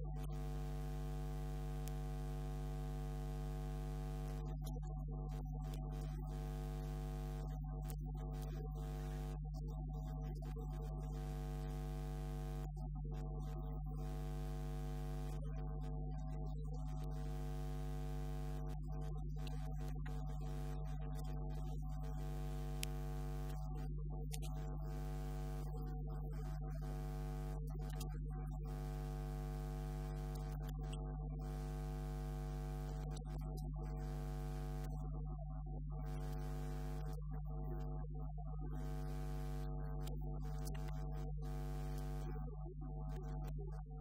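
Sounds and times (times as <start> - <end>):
electrical hum: 0.0 - 4.8, 5.4 - 9.3, 11.2 - 12.7, 14.0 - 15.8, 17.0 - 21.2, 22.1 - 23.6, 31.4 - 34.9.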